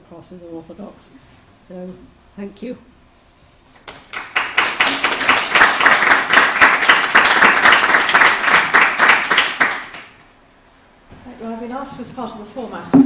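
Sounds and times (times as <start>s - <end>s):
audience applause: 4.1s - 10.0s.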